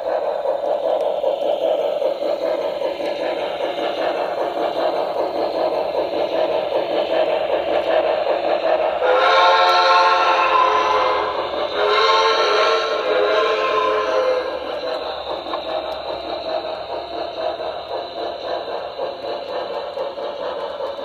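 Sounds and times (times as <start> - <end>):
steam exhaust chuffing: 0.0 - 21.0
multi-tone steam whistle: 9.0 - 14.8.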